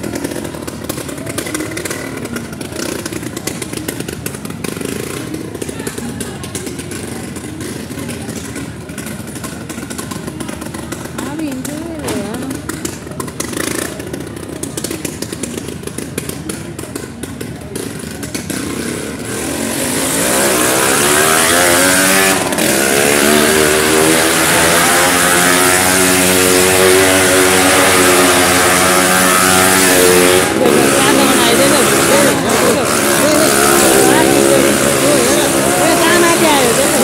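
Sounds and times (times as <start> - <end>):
motorcycle engine revving: 0.0 - 37.0.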